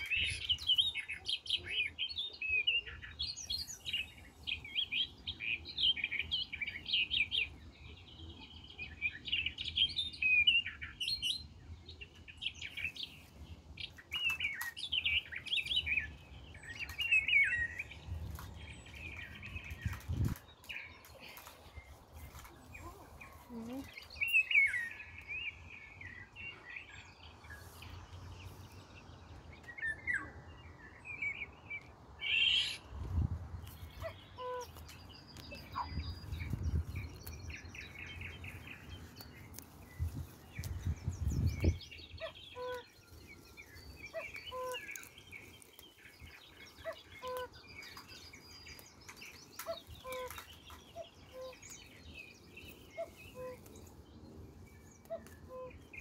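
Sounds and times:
songbirds chirping and singing: 0.0s - 56.0s.

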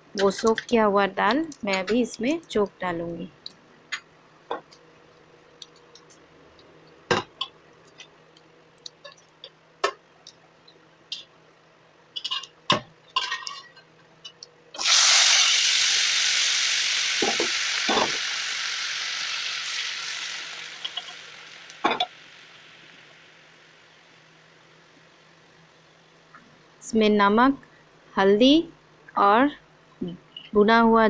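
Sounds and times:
seeds crackling in hot oil: 14.4s - 24.3s
pan sizzling loudly: 14.8s - 24.2s.

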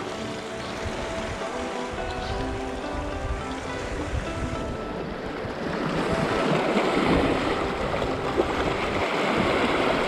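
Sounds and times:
wind buffeting microphone: 0.0s - 10.0s
sea waves splashing on rocks: 5.0s - 10.0s.

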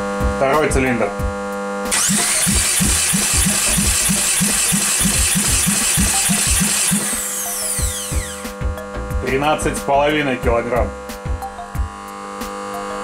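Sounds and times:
starter cranking engine: 1.9s - 8.6s
starter spinning down whine: 1.9s - 8.6s.

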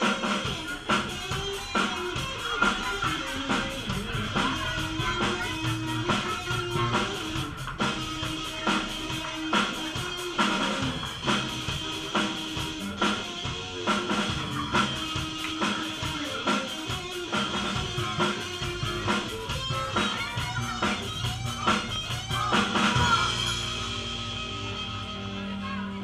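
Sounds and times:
drum kit beat: 0.0s - 25.7s
bass guitar: 0.0s - 26.0s
electric guitar: 0.0s - 26.0s
keyboard: 0.0s - 26.0s.

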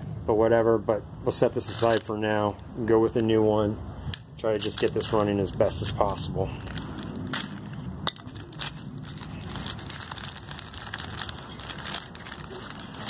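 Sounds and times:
plastic bag crinkling: 1.7s - 2.2s, 4.5s - 13.0s.

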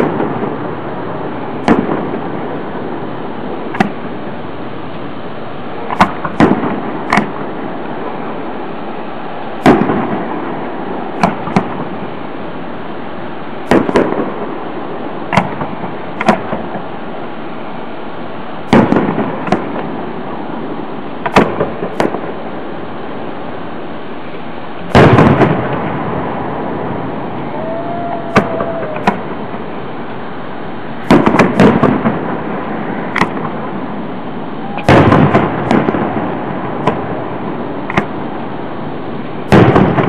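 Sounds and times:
firework shells booming: 0.0s - 4.3s, 5.8s - 8.4s, 9.5s - 12.2s, 13.6s - 16.9s, 18.6s - 22.5s, 24.8s - 27.4s, 28.1s - 29.9s, 30.9s - 40.0s
steady background noise: 0.0s - 40.0s.

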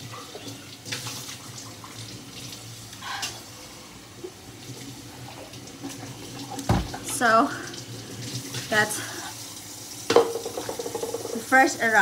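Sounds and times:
running water: 0.0s - 12.0s.

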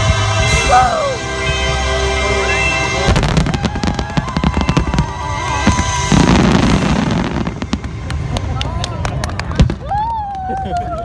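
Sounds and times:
heavy fireworks boom: 3.0s - 8.6s
fireworks bursting: 3.0s - 9.8s.

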